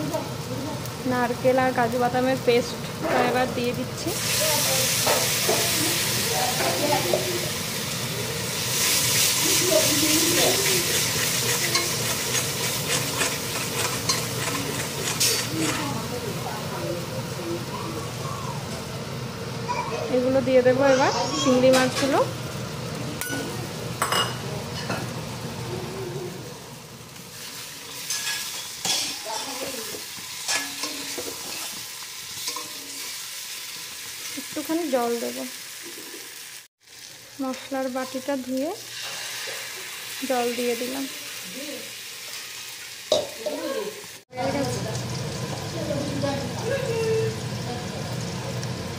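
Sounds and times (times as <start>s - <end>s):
oil frying hiss: 0.0s - 48.9s
spatula scraping a pan: 8.7s - 16.1s, 27.4s - 33.5s, 38.9s - 40.0s.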